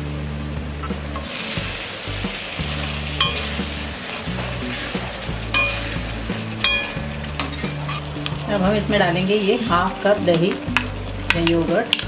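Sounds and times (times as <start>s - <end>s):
gravy sizzling and bubbling in a pan: 0.0s - 12.0s
spoon knocking against a pan: 3.2s - 3.5s, 6.6s - 7.8s.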